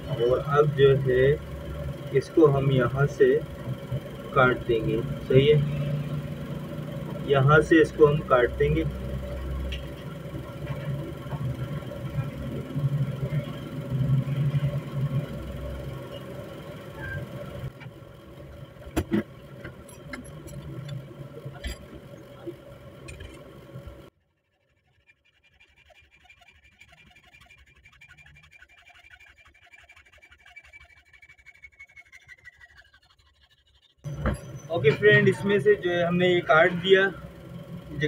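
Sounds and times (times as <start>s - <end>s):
steady hum: 0.0s - 24.1s.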